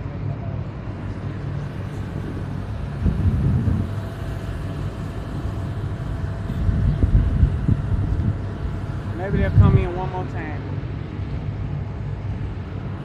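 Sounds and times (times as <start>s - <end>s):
distant aircraft engine droning: 0.0s - 13.0s.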